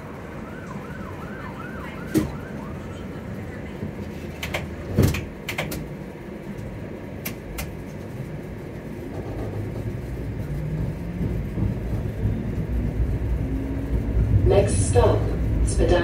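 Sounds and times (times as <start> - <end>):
streetcar rumbling on track: 0.0 - 16.0
sharp clicks or rattles: 4.4 - 5.9.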